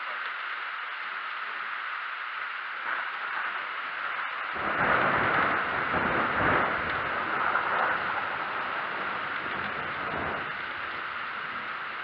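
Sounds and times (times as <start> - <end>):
steady hiss: 0.0 - 12.0
thunder rumbling: 4.5 - 12.0.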